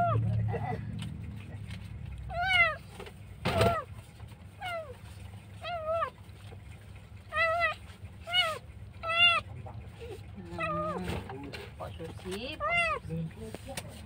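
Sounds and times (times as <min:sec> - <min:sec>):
kitten meowing: 0:02.3 - 0:03.9, 0:04.6 - 0:05.0, 0:05.6 - 0:06.2, 0:07.3 - 0:09.5, 0:10.6 - 0:11.1, 0:12.6 - 0:13.0.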